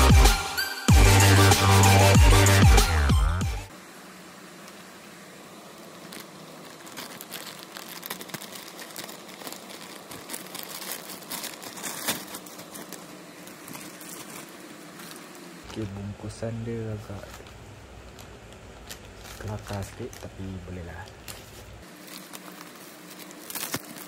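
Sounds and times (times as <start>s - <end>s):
bubble wrap rustling: 5.7s - 24.0s
plastic bag crinkling: 5.9s - 24.0s
scissors cutting plastic: 6.1s - 15.9s, 18.1s - 24.0s.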